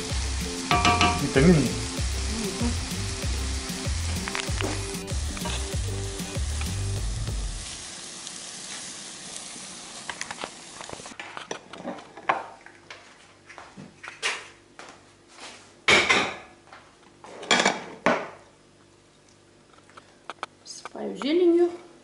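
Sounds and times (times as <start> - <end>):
eggs sizzling in a frying pan: 0.0 - 11.2.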